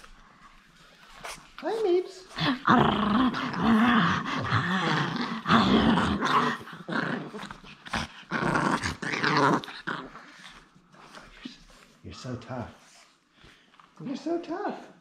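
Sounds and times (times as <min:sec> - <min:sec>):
dog growling: 0:02.3 - 0:11.5.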